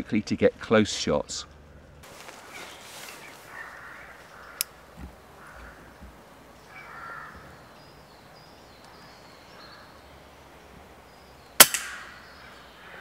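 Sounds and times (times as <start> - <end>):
air rifle shot crack: 11.6 - 12.4.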